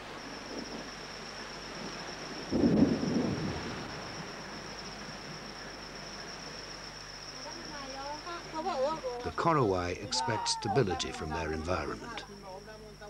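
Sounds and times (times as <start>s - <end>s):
thunder rumble: 0.0s - 6.9s
insect trill: 0.0s - 13.0s
steady rain: 0.0s - 13.0s.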